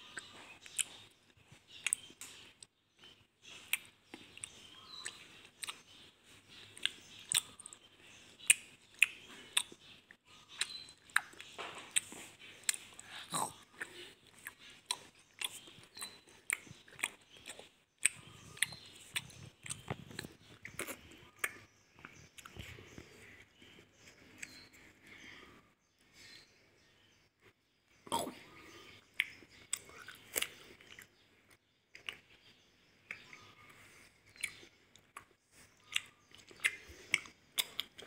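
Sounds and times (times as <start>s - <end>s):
wet sticky chewing: 3.5s - 23.7s, 34.3s - 38.0s.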